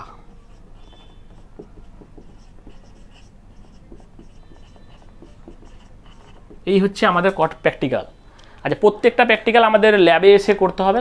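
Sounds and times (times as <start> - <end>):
marker writing on whiteboard: 0.0 - 7.7
marker tip squeaks: 0.4 - 6.6.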